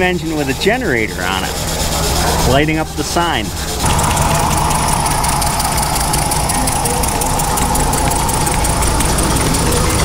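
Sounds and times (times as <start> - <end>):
model steam engines ticking: 3.4 - 10.0
low hum: 3.8 - 10.0.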